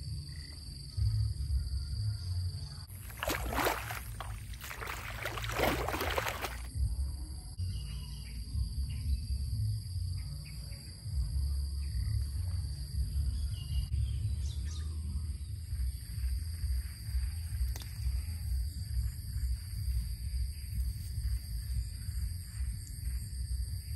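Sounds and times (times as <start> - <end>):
insect chorus: 0.0 - 23.9
rough splashing or rustling: 2.9 - 6.7
wind rumble on microphone: 11.0 - 23.9.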